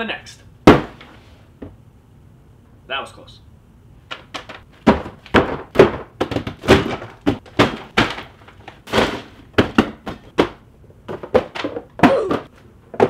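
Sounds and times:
cardboard boxes thudding: 0:00.6 - 0:01.1, 0:04.2 - 0:13.0.

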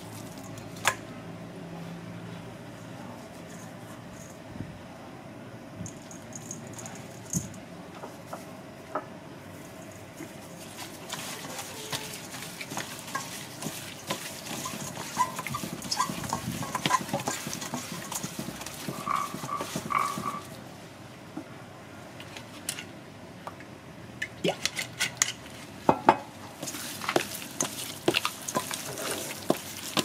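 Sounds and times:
wet squishing of meat rubbing: 0:10.1 - 0:20.6, 0:26.6 - 0:30.0.

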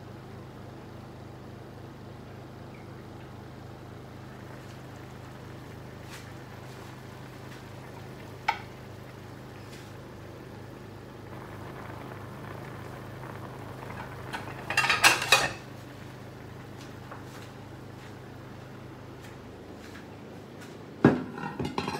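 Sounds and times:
low hum: 0:02.3 - 0:19.7
fish sizzling in sauce: 0:04.2 - 0:18.5
loud crackling burst: 0:04.4 - 0:17.0.

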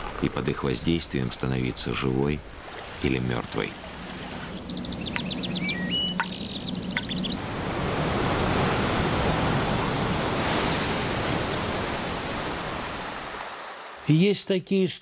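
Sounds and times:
waves breaking: 0:00.0 - 0:14.1
high chirps: 0:03.7 - 0:07.4.

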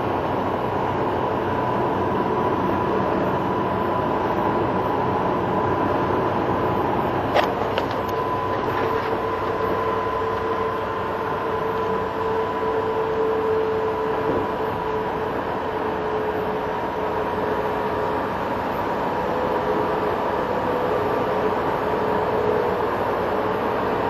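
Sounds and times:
steady whining tone: 0:00.0 - 0:24.0
truck engine and road noise: 0:00.0 - 0:24.0.

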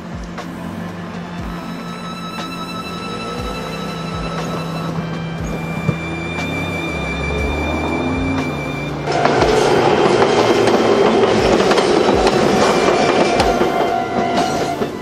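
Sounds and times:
background music: 0:00.0 - 0:15.0
train running rumble: 0:00.0 - 0:15.0
train wheels clacking over joints: 0:00.0 - 0:15.0.

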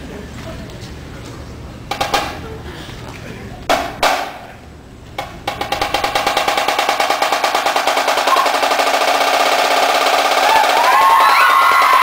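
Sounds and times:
snare drum roll: 0:01.9 - 0:02.5, 0:03.7 - 0:04.5, 0:05.1 - 0:12.0.

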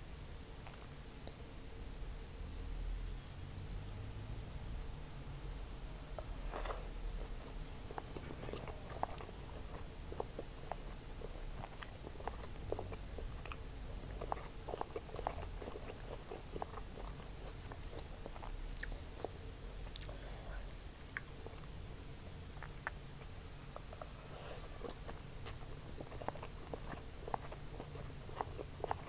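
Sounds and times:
chewing rice: 0:00.4 - 0:01.4, 0:07.4 - 0:29.0.

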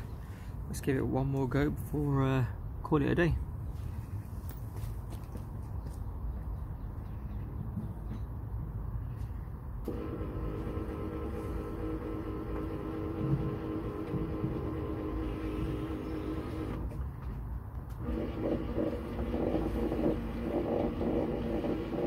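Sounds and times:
electric aerial motor whining: 0:09.8 - 0:16.9.

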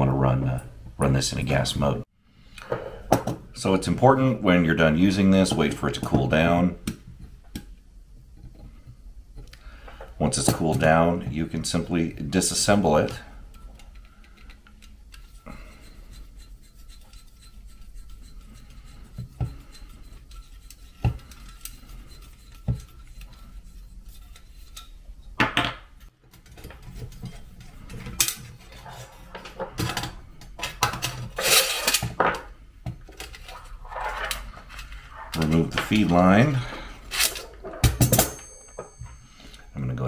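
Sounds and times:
metal clinking and scraping: 0:12.5 - 0:25.0, 0:26.4 - 0:32.4, 0:33.1 - 0:39.7.

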